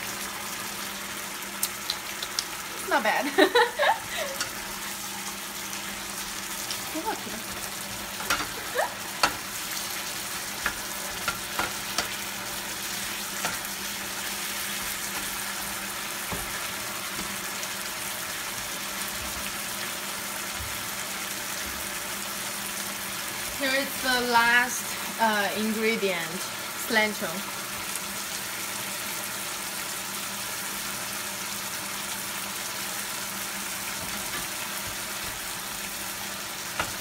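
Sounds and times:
shrimp sizzling in a frying pan: 0:00.0 - 0:37.0
spoon scraping a pan: 0:08.1 - 0:08.6, 0:10.5 - 0:12.5.

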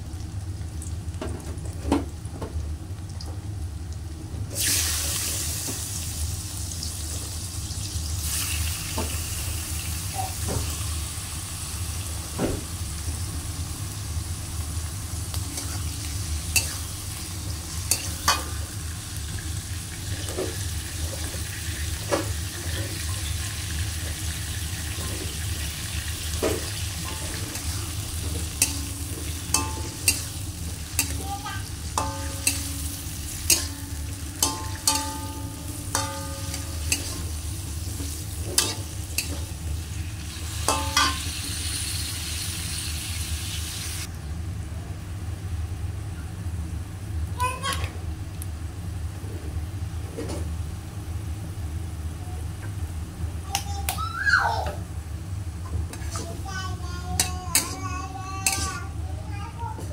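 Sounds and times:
food sizzling in oil: 0:00.0 - 0:44.1, 0:55.2 - 0:59.9
metal spatula scraping wok: 0:55.9 - 0:56.4.

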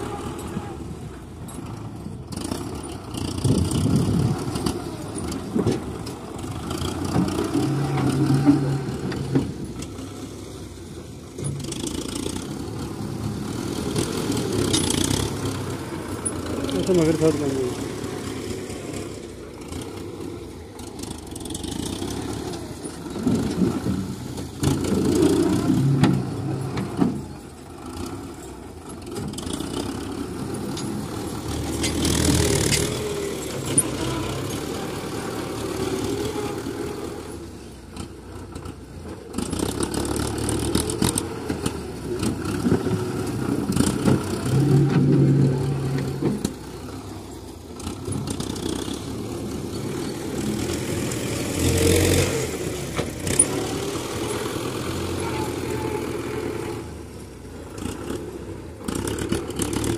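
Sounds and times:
tractor diesel engine revving: 0:00.0 - 0:59.9.

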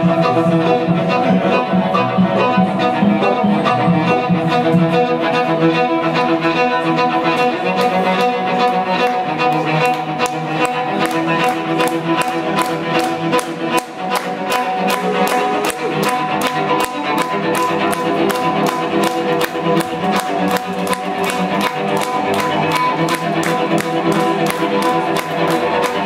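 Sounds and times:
bowed cello: 0:00.0 - 0:26.0.

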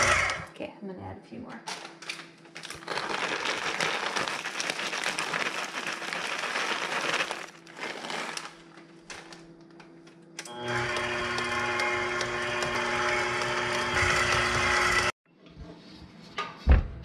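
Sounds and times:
stand mixer humming: 0:00.0 - 0:00.4, 0:10.5 - 0:15.2
chips rattling into metal bowl: 0:02.6 - 0:09.2
plastic bag crinkling: 0:02.6 - 0:09.5.

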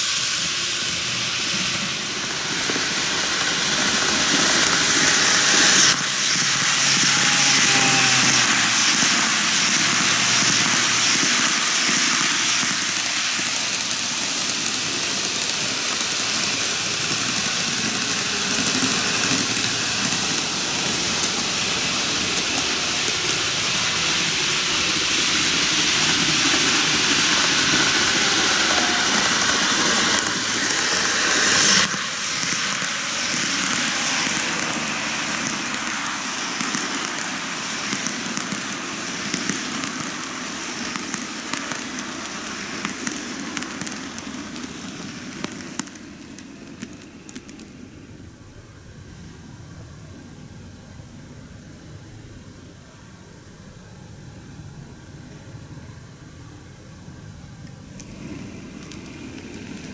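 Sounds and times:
model train wheels rattling: 0:01.5 - 0:40.0.

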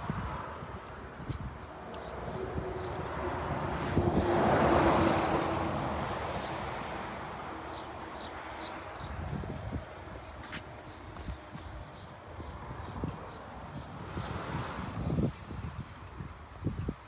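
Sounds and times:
birds chirping: 0:07.6 - 0:09.2, 0:10.1 - 0:15.2.

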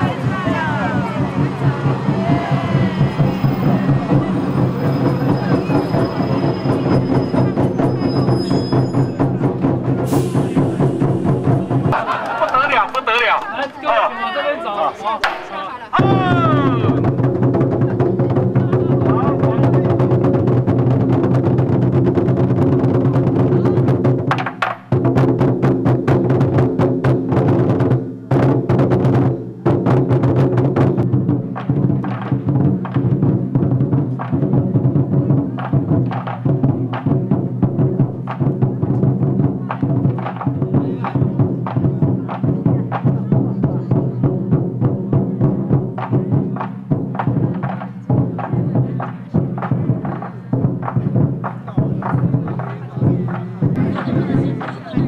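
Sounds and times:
barrel drums beating fast: 0:00.0 - 0:13.4, 0:15.2 - 0:55.0.

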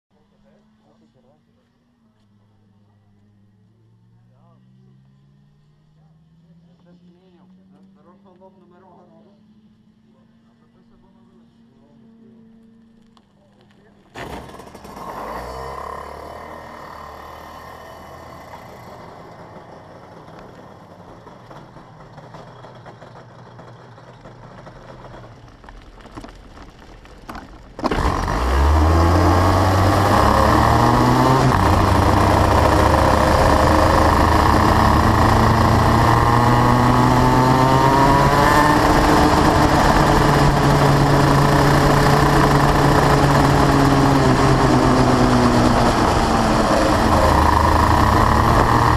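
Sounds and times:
fainter engine: 0:00.1 - 0:48.9
kart engine revving: 0:14.0 - 0:26.6, 0:27.2 - 0:48.9.

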